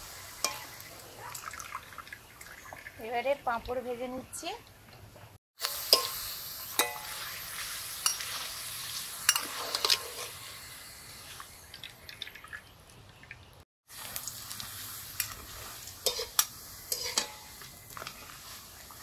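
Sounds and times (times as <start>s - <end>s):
frying in hot oil sizzle: 0.0s - 4.6s, 5.6s - 19.0s
metal spatulas clicking on pan: 16.0s - 17.4s.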